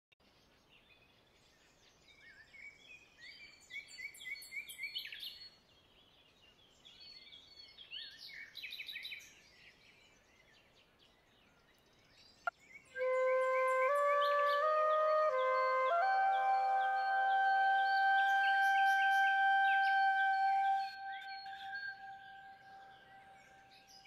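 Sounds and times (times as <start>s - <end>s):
small birds chirping: 0.3s - 24.0s.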